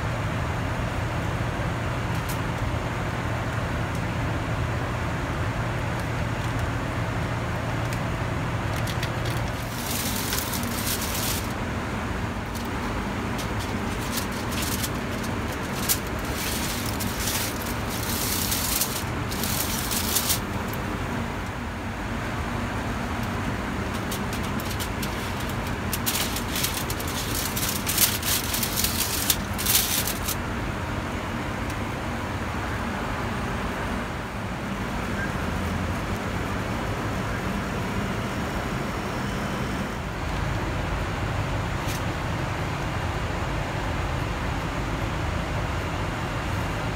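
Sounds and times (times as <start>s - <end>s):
foil trays crinkling: 7.6s - 21.6s, 22.8s - 30.4s.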